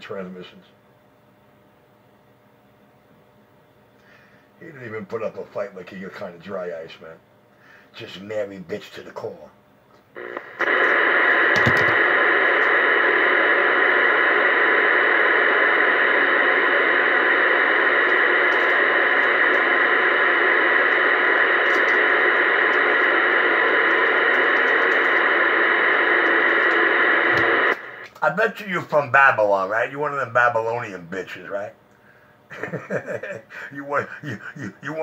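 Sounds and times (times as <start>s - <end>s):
radio static hiss: 10.1s - 31.8s, 32.5s - 35.0s.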